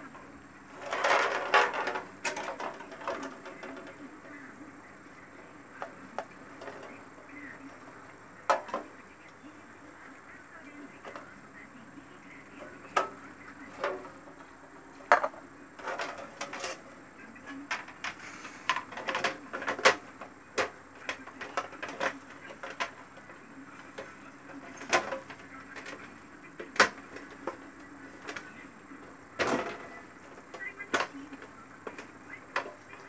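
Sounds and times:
plastic parts clicking and knocking: 0:00.7 - 0:04.4, 0:05.8 - 0:08.9, 0:12.6 - 0:16.8, 0:17.6 - 0:27.6, 0:28.2 - 0:33.0.

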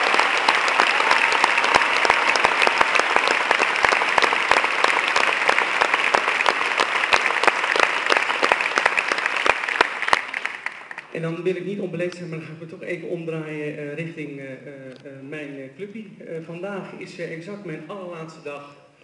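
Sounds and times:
crowd applauding: 0:00.0 - 0:11.2.

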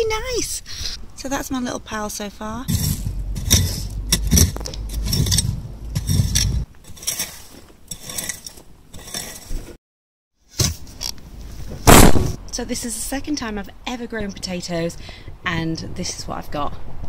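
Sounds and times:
low rumble: 0:02.6 - 0:06.6
garden tool scraping soil and stones: 0:02.7 - 0:09.8.

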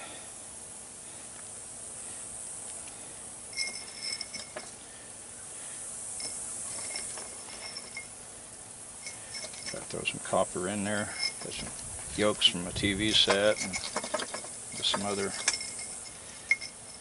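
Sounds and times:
steady outdoor hiss: 0:00.0 - 0:17.0
copper pieces clinking: 0:13.0 - 0:17.0.

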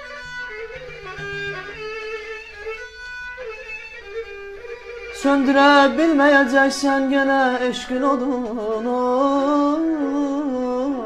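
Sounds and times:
plucked lute: 0:00.0 - 0:02.8
bowed string melody: 0:00.0 - 0:11.0.

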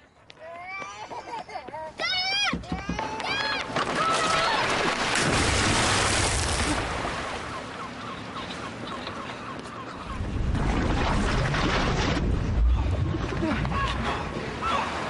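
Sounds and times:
water churning and lapping: 0:03.3 - 0:15.0
car splashing into water: 0:03.9 - 0:07.4.

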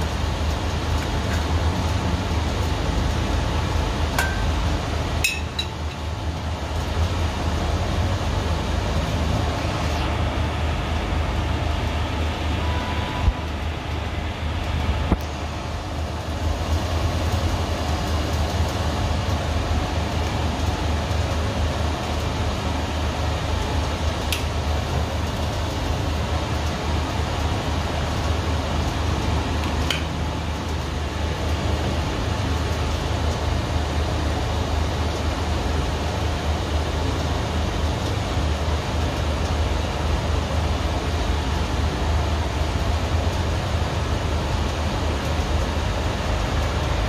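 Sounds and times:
low steady hum: 0:00.0 - 0:07.4.

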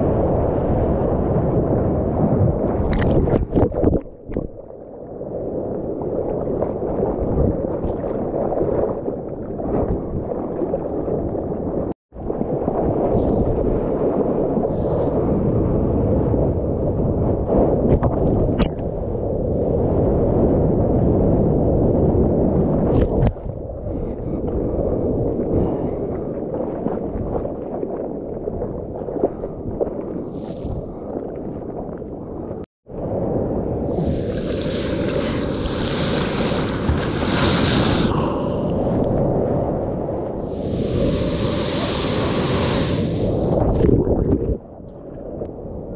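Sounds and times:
water and wind rushing: 0:00.0 - 0:45.9
whitewater spray hissing: 0:34.0 - 0:38.6, 0:40.5 - 0:43.5.

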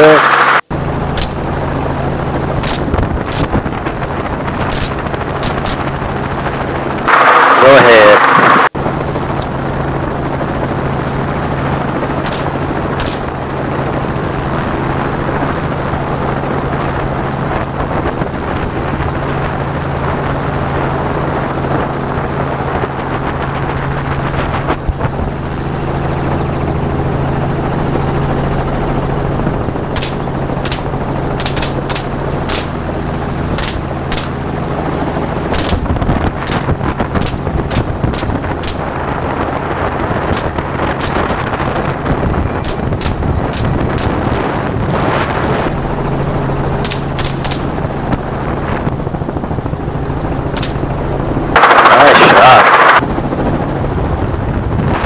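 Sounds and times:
helicopter rotor and engine drone: 0:00.0 - 0:55.0
rifle shots: 0:02.6 - 0:03.6, 0:04.7 - 0:06.0, 0:12.2 - 0:13.4, 0:29.9 - 0:32.8, 0:33.5 - 0:34.4, 0:35.5 - 0:39.0, 0:40.3 - 0:41.4, 0:42.6 - 0:44.3, 0:46.8 - 0:47.7, 0:50.6 - 0:50.9.

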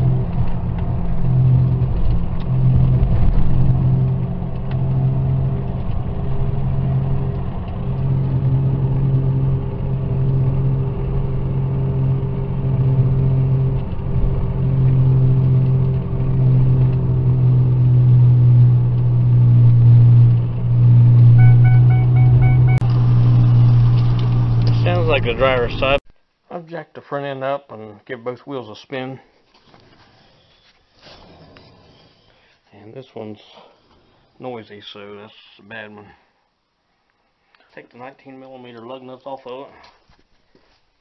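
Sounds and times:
engine and tyre rumble: 0:00.0 - 0:26.0.

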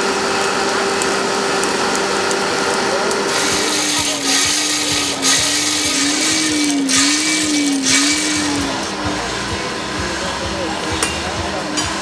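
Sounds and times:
hand-cranked blower whining: 0:00.0 - 0:12.0
air hissing: 0:03.1 - 0:11.9.

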